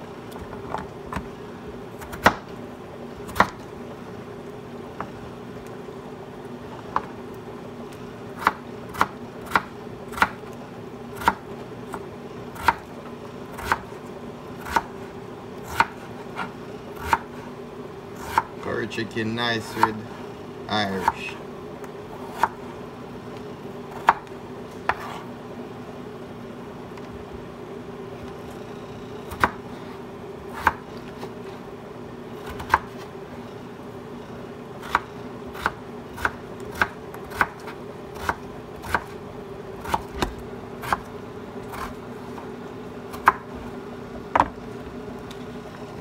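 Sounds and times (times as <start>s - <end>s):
knife chopping on cutting board: 3.3s - 3.6s, 12.6s - 12.9s, 13.6s - 13.9s, 15.7s - 17.4s, 18.2s - 18.5s, 24.8s - 25.2s, 29.3s - 29.6s, 30.5s - 31.3s, 34.8s - 39.2s, 43.1s - 43.5s.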